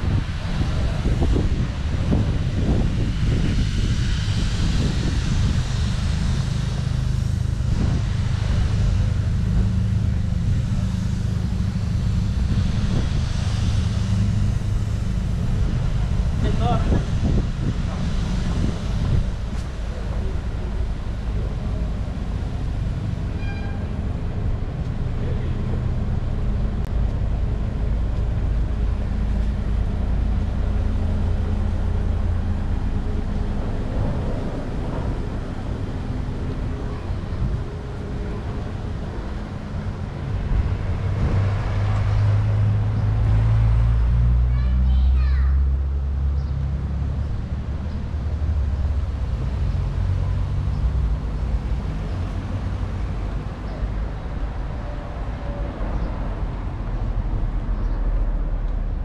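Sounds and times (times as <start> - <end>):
vehicle engine rumbling: 0.0 - 59.0.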